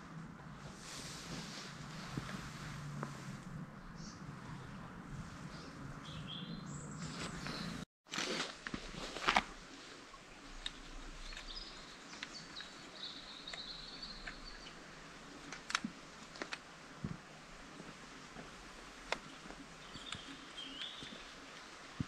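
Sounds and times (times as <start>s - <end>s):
small birds chirping: 3.7s - 7.8s, 10.3s - 15.5s, 19.2s - 21.6s
bird singing high steady song: 5.4s - 7.8s, 10.7s - 14.9s, 19.2s - 21.3s
scattered ticks: 19.0s - 21.3s.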